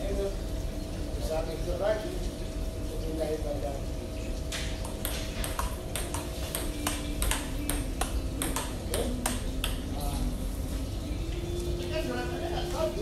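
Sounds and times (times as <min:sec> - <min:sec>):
ping pong ball clicking: 0:04.8 - 0:10.0.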